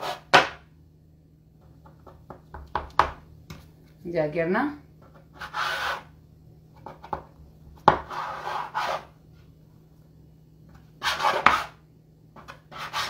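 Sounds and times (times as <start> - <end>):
blade scraping across board: 5.4 - 6.1, 8.0 - 9.1, 11.0 - 11.8, 12.4 - 13.0
knife cutting dough on board: 6.8 - 9.1, 11.0 - 11.8.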